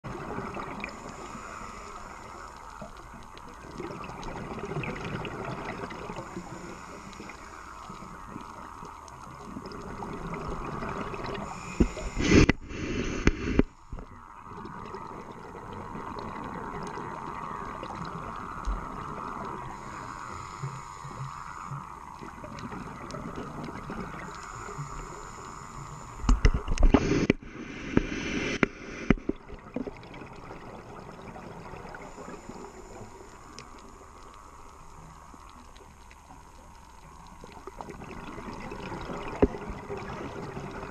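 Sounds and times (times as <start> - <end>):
muffled underwater hiss: 0.1 - 40.9.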